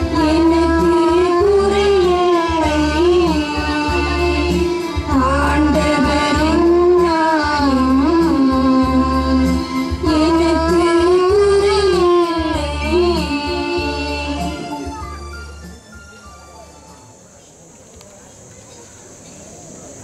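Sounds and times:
person singing a hymn: 0.0s - 15.1s
low instrumental accompaniment: 0.0s - 17.6s.

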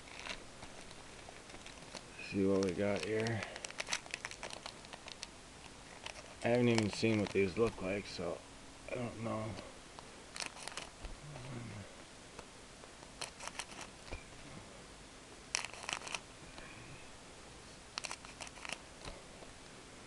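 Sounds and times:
scissors snipping wrappers: 0.0s - 5.3s, 5.9s - 7.8s.

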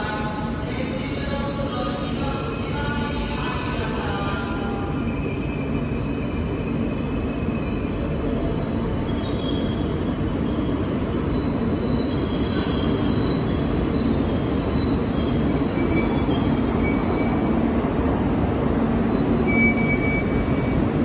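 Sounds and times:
train rumbling: 0.0s - 21.0s
high brake squeal: 4.9s - 17.5s, 19.1s - 20.8s.

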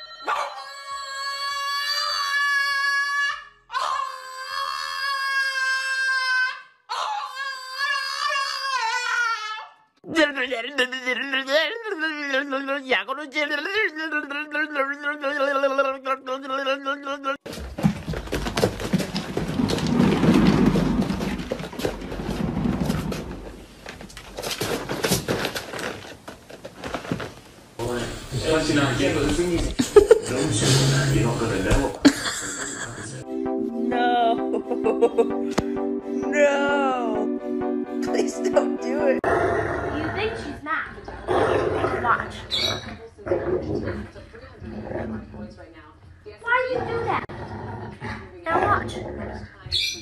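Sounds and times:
exercise wheel rumbling: 17.5s - 32.1s.

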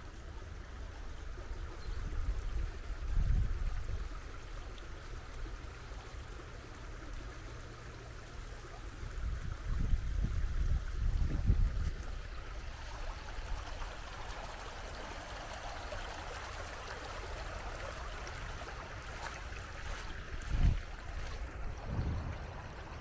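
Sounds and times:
stream trickling over stones: 0.0s - 23.0s
short low rumbles: 20.4s - 23.0s.

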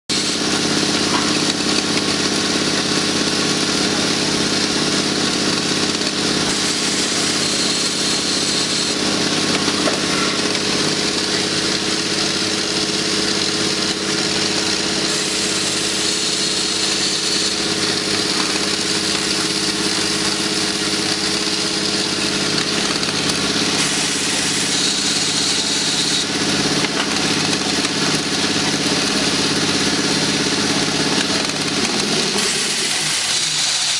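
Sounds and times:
assembly machine humming: 0.1s - 33.9s.

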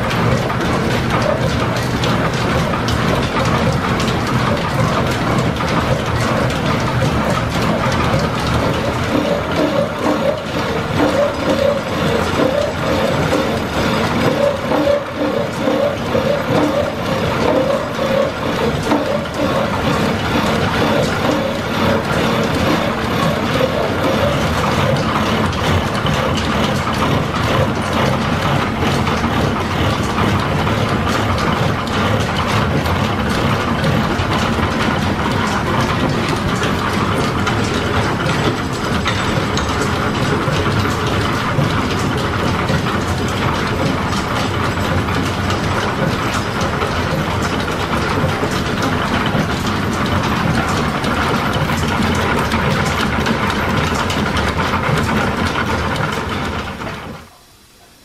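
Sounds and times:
belts and pulleys running: 0.0s - 57.7s
milling machine cutting steel: 7.3s - 25.5s.

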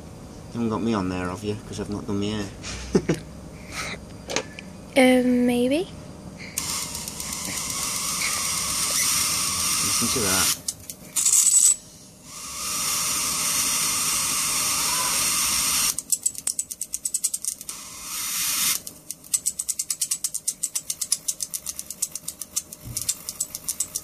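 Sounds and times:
electric arc hissing and crackling: 6.6s - 11.4s.

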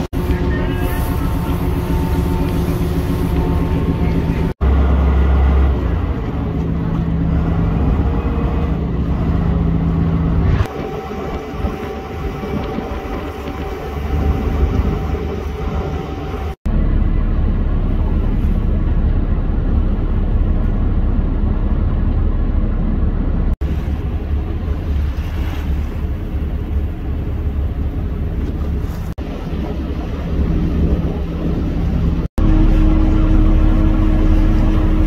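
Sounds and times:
rushing water: 0.0s - 22.1s, 23.4s - 35.0s
boat engines rumbling: 0.0s - 35.0s
wind buffeting microphone: 5.6s - 35.0s.

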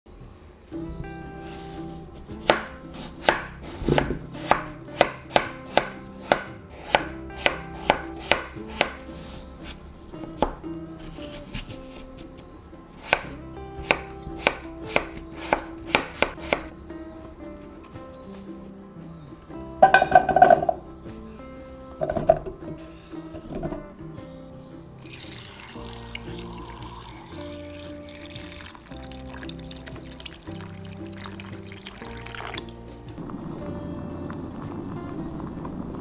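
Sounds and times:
knife striking cutting board: 3.3s - 9.0s, 13.0s - 16.7s, 19.8s - 20.8s.

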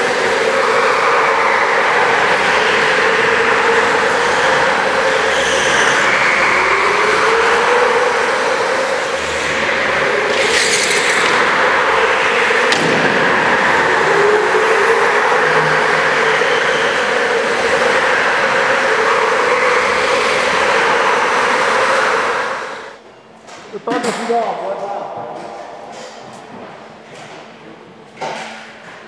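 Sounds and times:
go-kart engines passing by: 0.0s - 23.0s.

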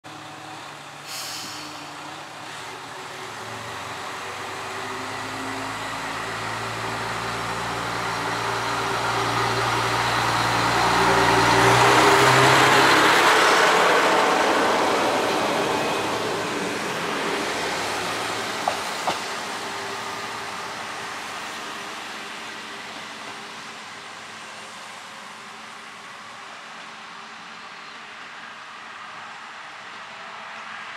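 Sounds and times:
diesel railcar engine pulling: 0.1s - 30.9s
short hiss: 1.1s - 1.8s
wheels running on rail: 2.0s - 24.2s.

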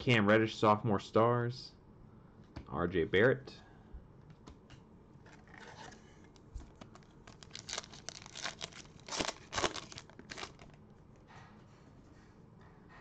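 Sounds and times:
foil wrapper tearing and crinkling: 6.9s - 10.8s.

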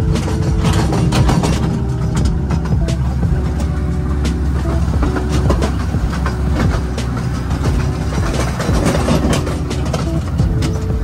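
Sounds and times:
rattling clicks: 0.0s - 11.0s
vehicle engine rumble: 0.0s - 11.0s.

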